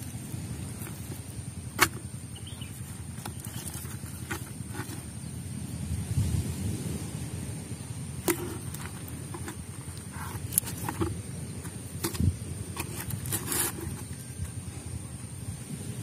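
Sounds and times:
rubbing and scraping: 0.4 - 5.3, 8.2 - 14.6
fish knocking and slapping in tub: 0.7 - 2.3, 8.2 - 14.5.

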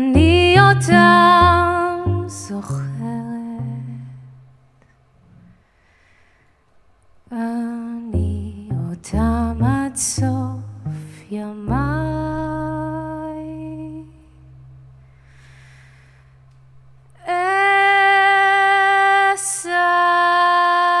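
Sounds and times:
woman singing long notes: 0.0 - 4.4, 7.3 - 14.5
bowed cello note: 0.0 - 4.5, 8.1 - 17.0
breath: 5.6 - 6.8, 15.1 - 16.5.

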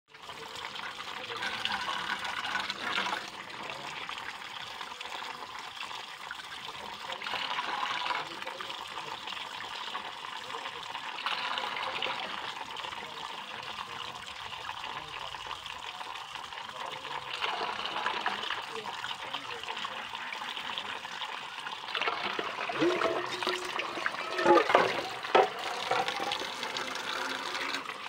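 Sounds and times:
tap water running into metal bowl: 0.1 - 28.0.

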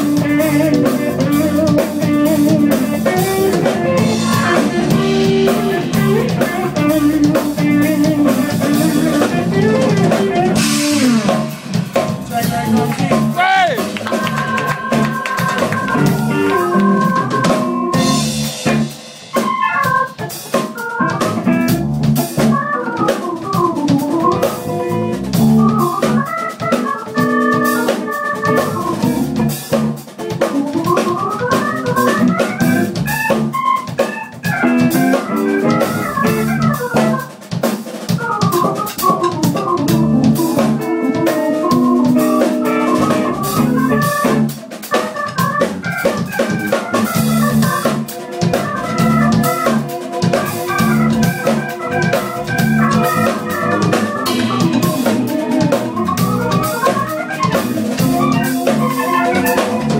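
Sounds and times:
drum groove: 0.0 - 59.9
jazz band playing: 0.0 - 59.9
organ sound melodic runs: 0.0 - 59.9.

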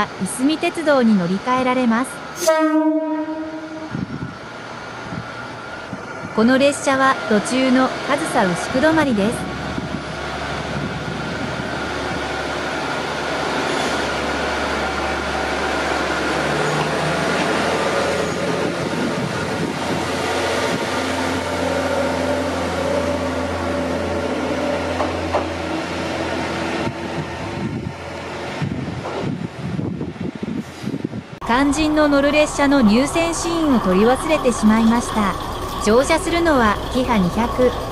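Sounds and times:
diesel railcar engine passing: 0.0 - 37.9.

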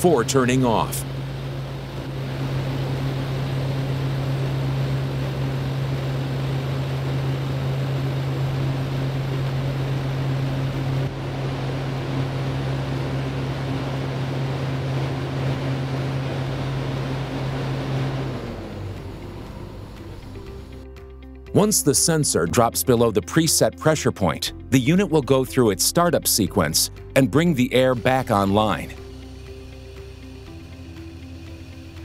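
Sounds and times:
diesel engine idling: 12.2 - 20.9.

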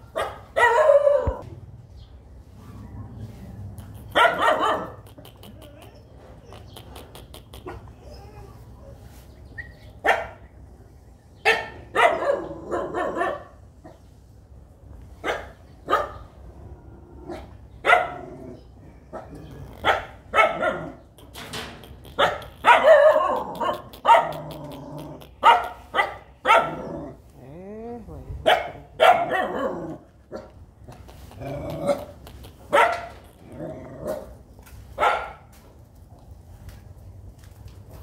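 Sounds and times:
dogs barking: 0.1 - 1.4, 4.0 - 5.9, 10.0 - 10.4, 11.4 - 14.0, 15.2 - 16.3, 17.3 - 18.5, 19.1 - 21.0, 22.1 - 27.2, 28.4 - 30.6, 31.5 - 33.2, 35.0 - 35.5.

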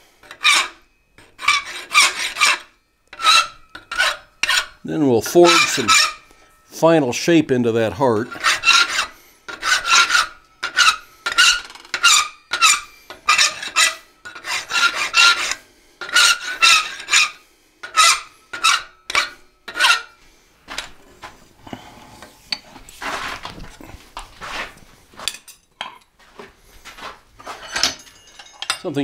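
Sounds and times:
file rasping on steel: 0.2 - 6.3, 8.2 - 20.2
light metal clinks: 27.7 - 29.0.

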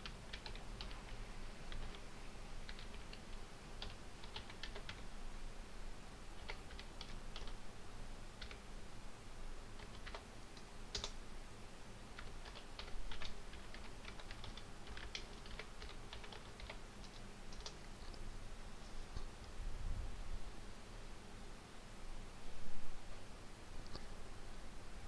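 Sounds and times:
keyboard keys clicking: 0.0 - 1.0, 2.7 - 5.0, 10.9 - 11.2, 12.2 - 17.8.

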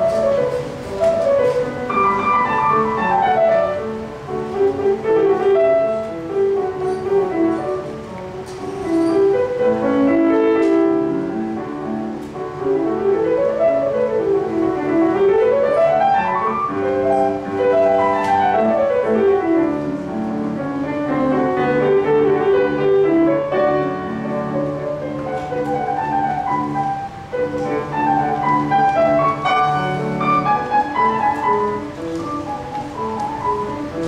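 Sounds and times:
solo piano classical piece: 0.0 - 34.0.

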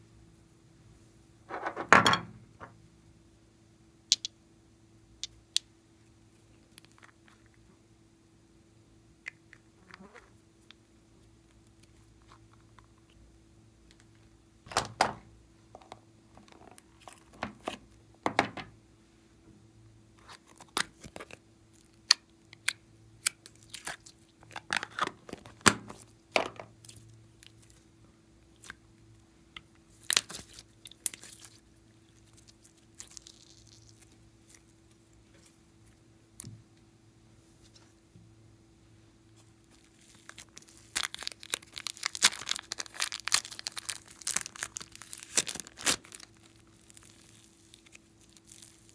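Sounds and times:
faint steady hum: 0.0 - 48.9
plastic containers clicking and crinkling: 24.4 - 26.7.

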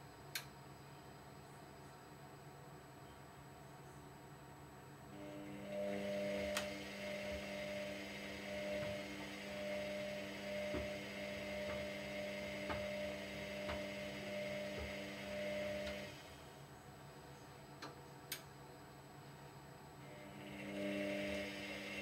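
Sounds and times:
washer drum motor humming: 5.1 - 16.7, 20.0 - 22.0.

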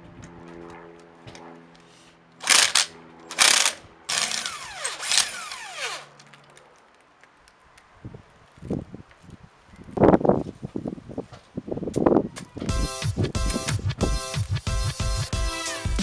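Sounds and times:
impact wrench whirring: 2.4 - 6.2.

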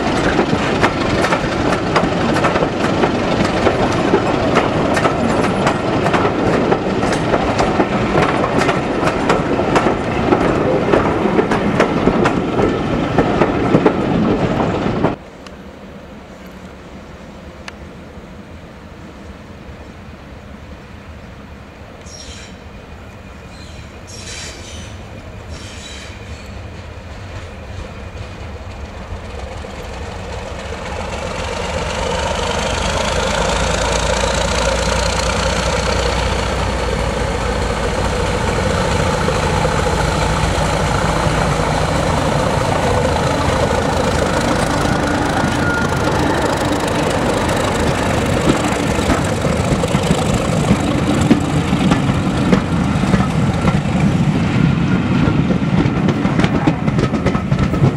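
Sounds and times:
wheels knocking over rail joints: 0.0 - 15.2, 41.4 - 54.0
diesel locomotive engine: 0.0 - 57.9
rising whine: 40.3 - 50.0.

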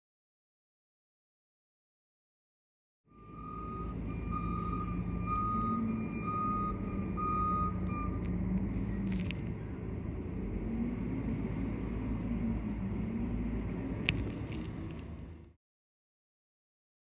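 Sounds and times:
backup alarm beeping: 3.2 - 8.3
garbage truck engine running: 3.2 - 15.5.

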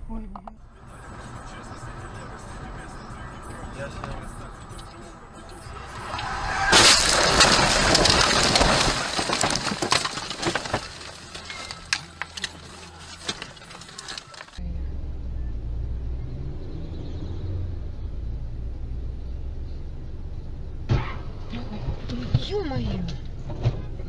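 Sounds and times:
car engine hum: 0.0 - 24.0
crunching and scraping: 3.3 - 14.6
car crash impact: 5.4 - 14.6, 20.8 - 21.6
glass and debris rattling: 6.1 - 14.6.

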